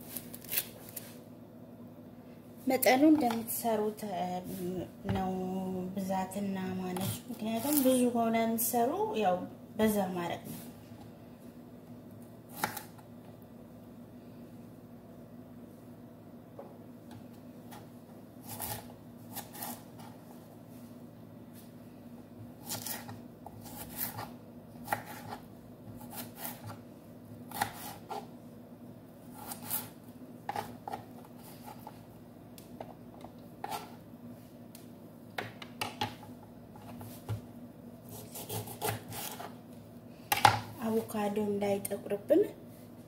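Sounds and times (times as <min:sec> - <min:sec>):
faint steady hum: 0:00.0 - 0:43.0
knife cutting on wooden board: 0:18.4 - 0:20.1, 0:22.6 - 0:25.4, 0:27.5 - 0:28.3, 0:29.4 - 0:29.9, 0:38.1 - 0:39.5.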